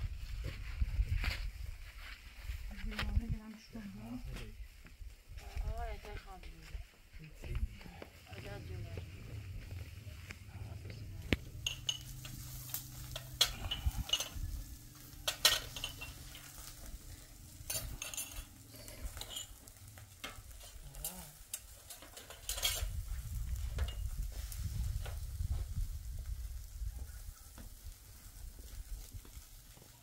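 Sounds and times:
fire crackling: 0:00.0 - 0:30.0
meat sizzling over fire: 0:04.0 - 0:06.7, 0:07.4 - 0:30.0
low rumble: 0:07.5 - 0:18.0.

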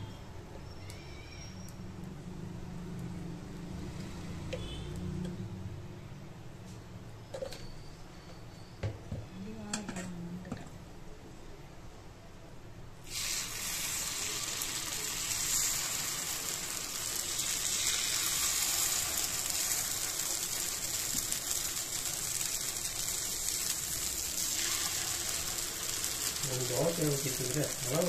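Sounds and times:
batter sizzling in hot oil: 0:13.0 - 0:28.0.

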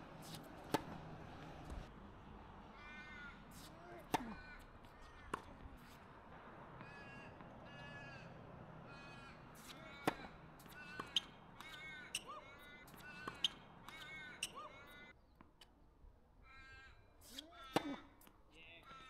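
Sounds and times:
tennis ball strikes and bounces: 0:00.1 - 0:01.9, 0:03.5 - 0:07.9, 0:09.1 - 0:14.6, 0:17.4 - 0:18.4
bird cawing: 0:02.7 - 0:03.4, 0:04.2 - 0:05.5, 0:06.7 - 0:15.1, 0:16.4 - 0:18.1, 0:18.8 - 0:19.0.

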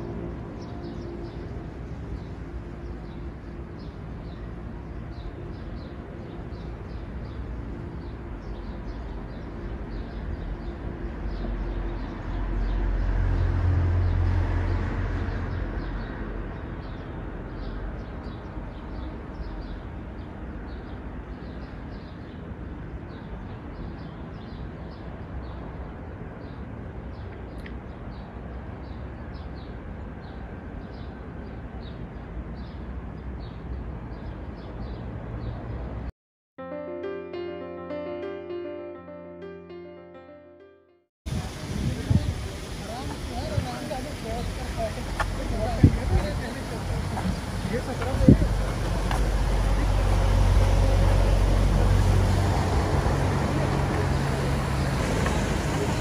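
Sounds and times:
distant train rumble: 0:00.0 - 0:21.2, 0:41.3 - 0:56.0.

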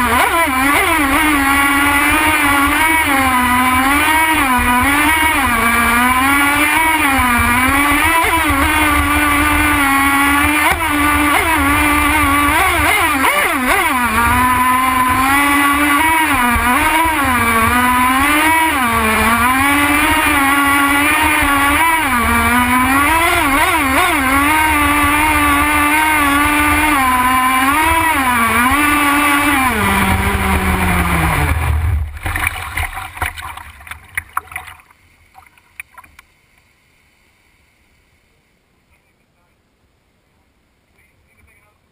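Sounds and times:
model boat engine revving: 0:00.0 - 0:33.4.

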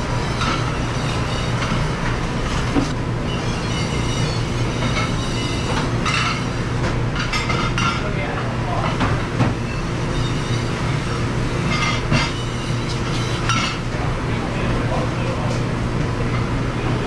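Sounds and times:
dishwashing machine humming: 0:00.0 - 0:17.0
dish racks and dishes clattering: 0:02.8 - 0:09.6, 0:11.6 - 0:13.9.

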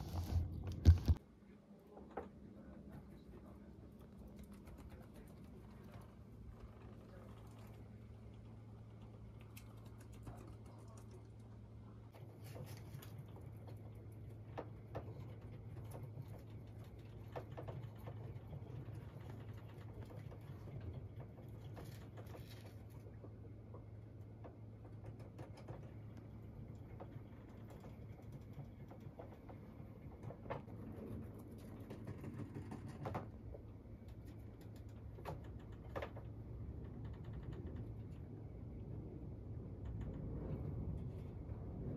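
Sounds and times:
hamsters scrabbling in bedding: 0:00.0 - 0:01.2, 0:02.8 - 0:38.8
low hum: 0:33.3 - 0:41.9.

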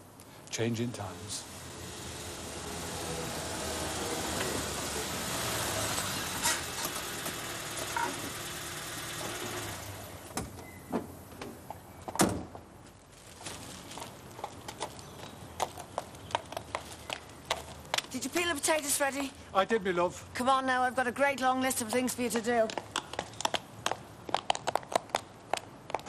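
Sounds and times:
car engine running: 0:01.2 - 0:10.4
plastic bags rustling: 0:12.8 - 0:17.4.

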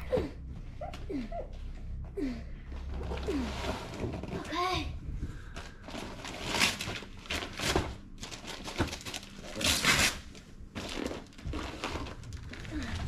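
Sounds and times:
wrapping paper rustling: 0:05.4 - 0:13.0.

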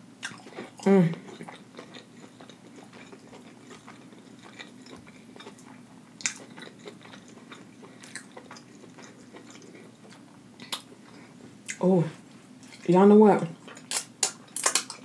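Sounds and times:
chewing chicken: 0:00.2 - 0:11.8.

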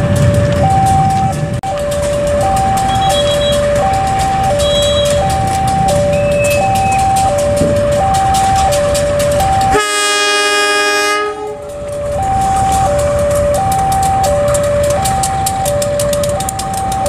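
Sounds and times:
idling diesel locomotive rumble: 0:00.0 - 0:17.0
two-tone electronic warning signal: 0:00.2 - 0:17.0
diesel locomotive horn blast: 0:02.8 - 0:03.7, 0:04.6 - 0:05.2, 0:09.7 - 0:11.8.

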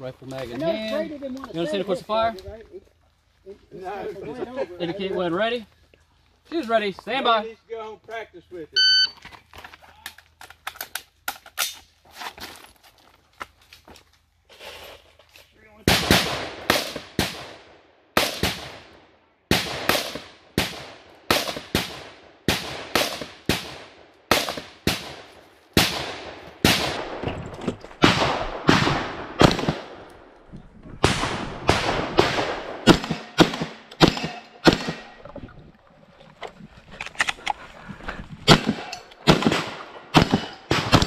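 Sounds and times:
rifle gunshots: 0:15.9 - 0:18.9, 0:19.5 - 0:27.2, 0:28.0 - 0:30.1, 0:31.0 - 0:35.3, 0:38.4 - 0:41.0
shotgun blasts: 0:15.9 - 0:18.9, 0:19.5 - 0:27.2, 0:28.0 - 0:30.0, 0:31.0 - 0:35.3, 0:38.4 - 0:41.0.

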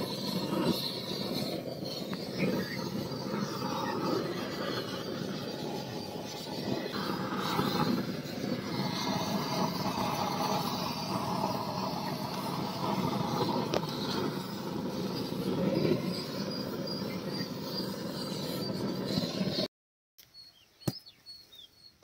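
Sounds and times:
gas blowtorch roaring: 0:00.0 - 0:19.7.

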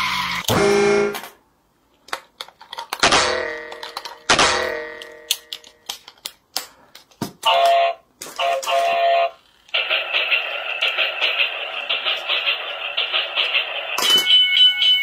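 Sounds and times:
plastic toy clicks and knocks: 0:02.0 - 0:09.0.

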